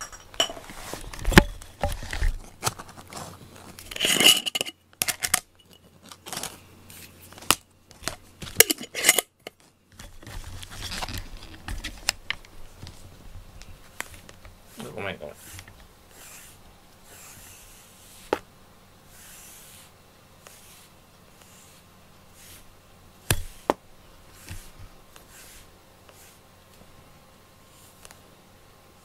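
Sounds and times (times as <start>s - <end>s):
clicks and knocks of small objects: 0.0s - 6.6s
objects clattering: 0.0s - 6.6s, 7.3s - 13.0s.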